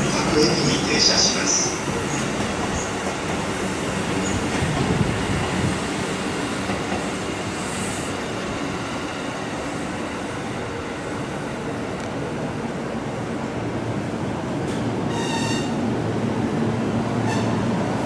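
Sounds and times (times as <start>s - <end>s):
train wheels on rails: 0.0s - 12.9s, 14.0s - 18.0s.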